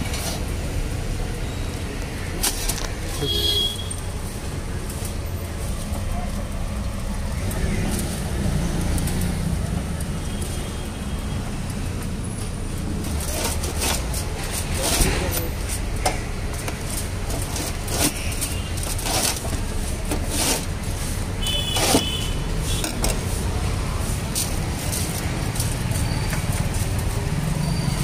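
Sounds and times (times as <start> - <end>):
street traffic rumble: 0.0 - 28.0
pizza cutter clicking and scraping: 13.1 - 23.3.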